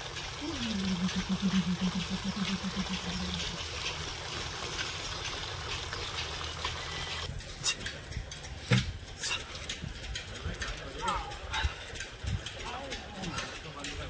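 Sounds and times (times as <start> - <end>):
water running into plastic bucket: 0.0 - 7.3.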